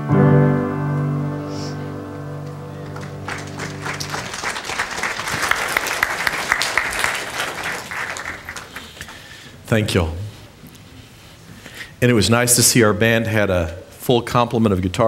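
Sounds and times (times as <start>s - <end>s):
piano chord ringing: 0.0s - 4.6s
congregation applauding: 2.4s - 9.5s.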